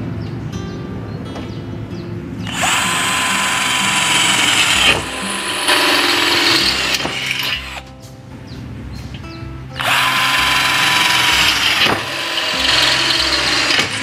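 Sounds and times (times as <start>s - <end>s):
cordless drill boring through steel: 2.4s - 7.8s, 9.8s - 14.0s.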